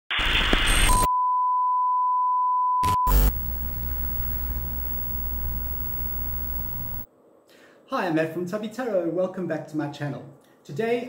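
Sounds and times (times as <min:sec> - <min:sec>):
tv static burst: 0:00.1 - 0:01.0, 0:02.8 - 0:07.1
glitch bursts: 0:02.8 - 0:07.1.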